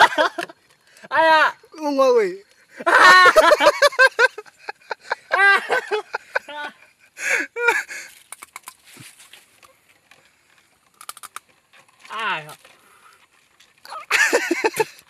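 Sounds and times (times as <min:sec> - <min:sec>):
faint clicks and rustles: 0:00.0 - 0:01.1, 0:07.8 - 0:15.0
boy crying and groaning: 0:05.2 - 0:05.9, 0:13.9 - 0:14.2.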